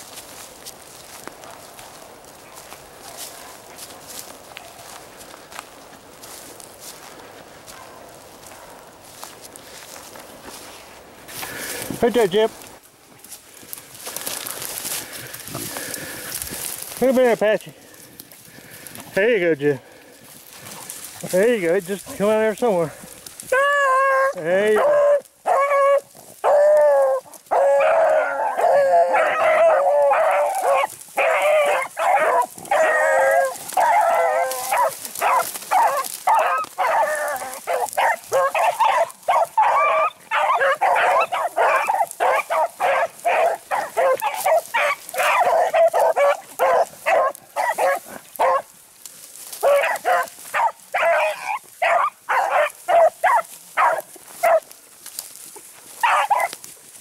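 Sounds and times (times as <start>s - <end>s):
beagles baying: 14.0s - 54.7s, 55.9s - 56.7s.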